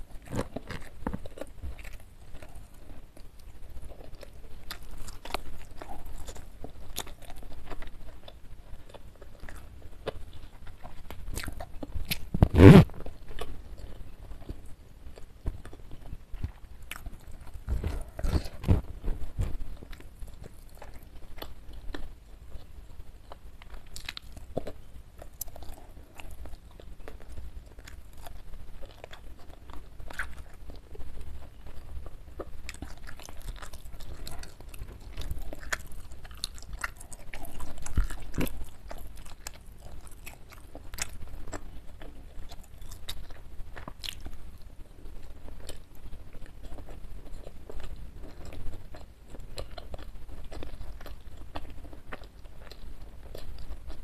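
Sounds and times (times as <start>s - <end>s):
chewing food: 0.0s - 54.0s
mouth clicks and crunches: 0.0s - 54.0s.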